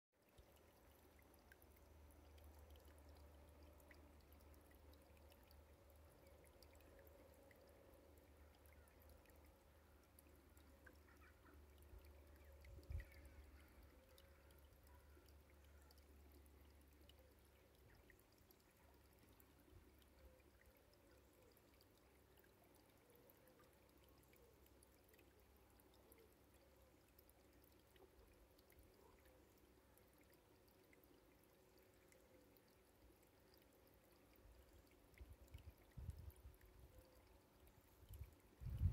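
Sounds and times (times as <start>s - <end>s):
water trickling: 0.2s - 38.9s.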